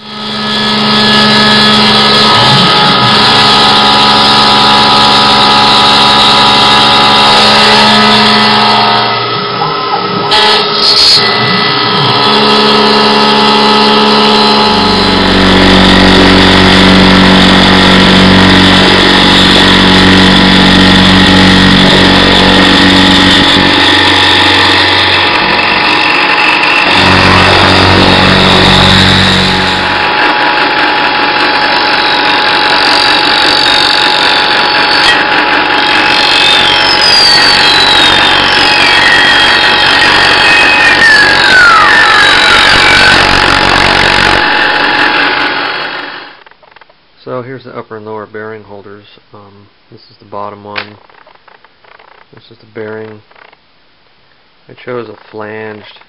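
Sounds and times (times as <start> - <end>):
milling machine cutting metal: 0.0 - 46.3.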